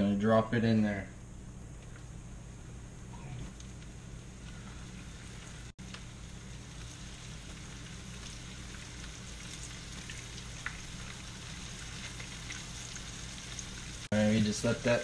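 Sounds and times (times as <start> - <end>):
fish frying in oil: 4.4 - 15.0.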